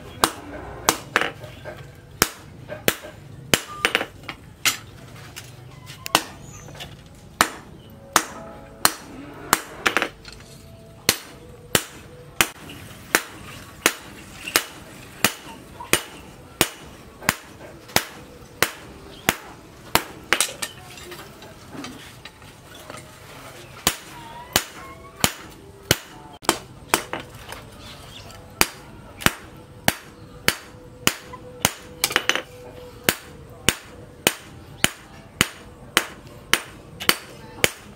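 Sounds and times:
hammer striking hot steel on anvil: 0:00.2 - 0:04.8, 0:06.1 - 0:06.4, 0:07.4 - 0:10.2, 0:11.0 - 0:20.8, 0:23.8 - 0:27.2, 0:28.6 - 0:37.9.

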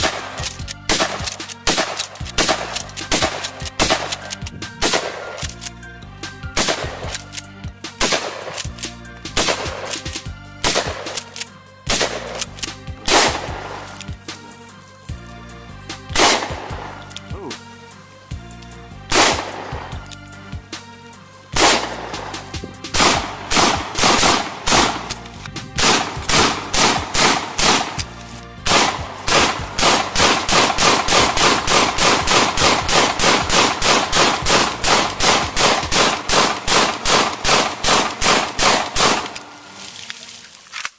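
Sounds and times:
rifle firing rapidly: 0:00.0 - 0:05.5, 0:06.6 - 0:07.3, 0:08.0 - 0:08.8, 0:09.4 - 0:14.0, 0:16.2 - 0:16.8, 0:19.1 - 0:19.8, 0:21.6 - 0:22.1, 0:22.9 - 0:25.2, 0:25.8 - 0:39.4
handgun shots: 0:00.0 - 0:05.7, 0:06.5 - 0:14.1, 0:16.1 - 0:17.3, 0:19.1 - 0:20.1, 0:21.6 - 0:28.1, 0:28.7 - 0:39.5
faint background music: 0:00.0 - 0:40.9.

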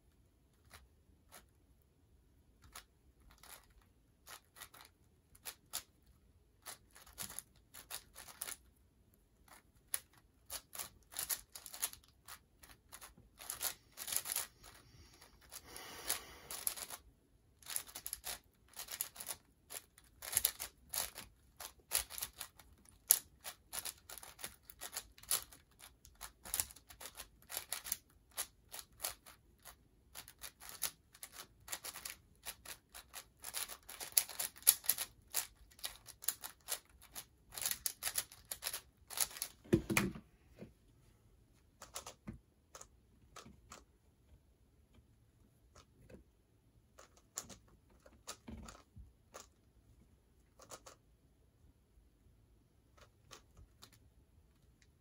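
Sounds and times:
puzzle cube clicking: 0:09.4 - 0:17.0, 0:17.6 - 0:39.6, 0:41.8 - 0:43.9.

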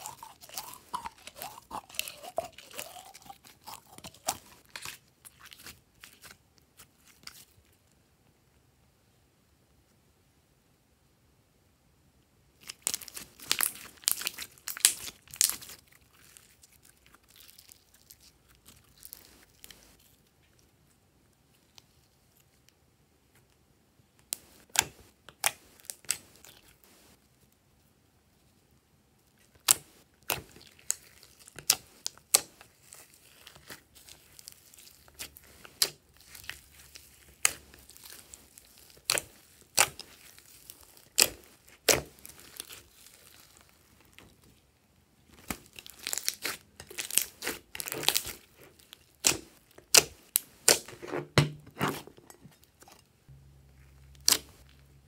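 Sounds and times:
slime clicking and popping: 0:00.0 - 0:05.0, 0:37.3 - 0:43.1, 0:49.2 - 0:50.9.

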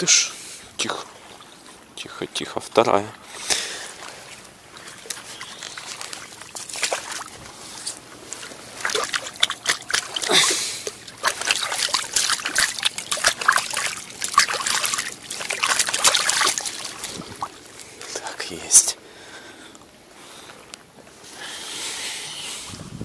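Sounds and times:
water trickling: 0:00.0 - 0:19.0
fish splashing and thrashing: 0:03.2 - 0:18.2.

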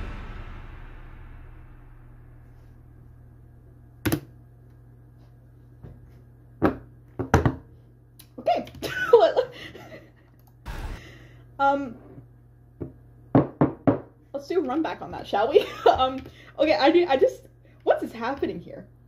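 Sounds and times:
low steady hum: 0:00.0 - 0:19.0
woman laughing: 0:08.5 - 0:10.3, 0:15.6 - 0:16.2.

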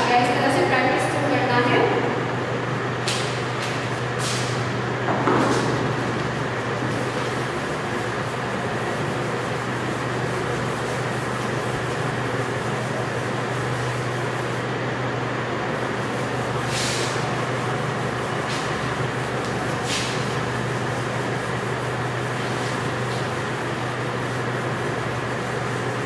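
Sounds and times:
duster rubbing on chalkboard: 0:06.9 - 0:14.6, 0:15.8 - 0:26.0.

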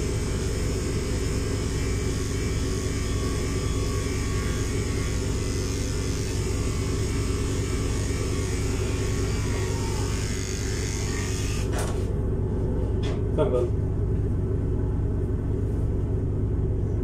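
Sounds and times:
electric clipper humming: 0:00.0 - 0:12.1.

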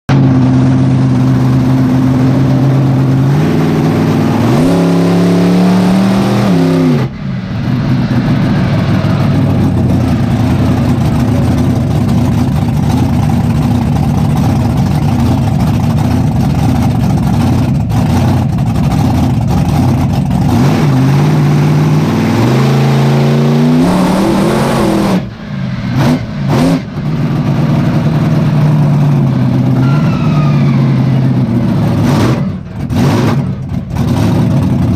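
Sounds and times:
truck engine revving: 0:00.1 - 0:34.9.

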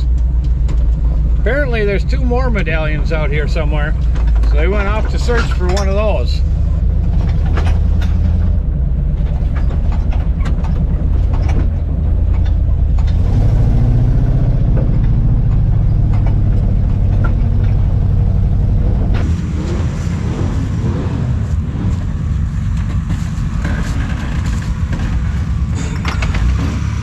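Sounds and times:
cab knocks and rattles: 0:00.0 - 0:19.3
truck engine running: 0:00.0 - 0:27.0.

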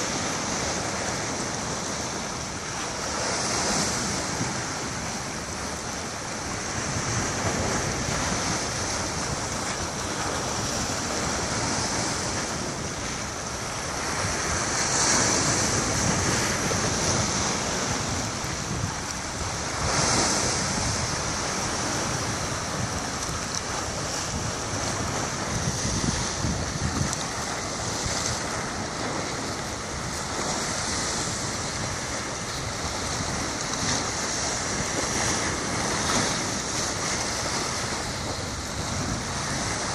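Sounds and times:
waves washing against rocks: 0:00.0 - 0:39.9
wind across microphone: 0:00.0 - 0:39.9.

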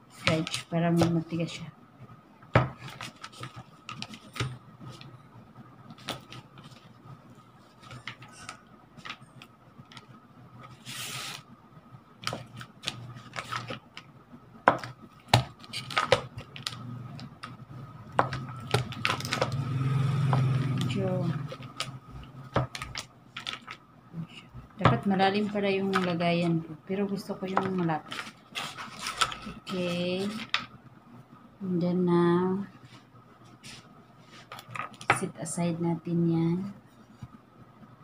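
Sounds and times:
faint steady whine: 0:00.0 - 0:38.0
paper wrapper rustling: 0:12.2 - 0:13.9, 0:18.4 - 0:19.6, 0:22.6 - 0:23.8, 0:27.7 - 0:30.6.

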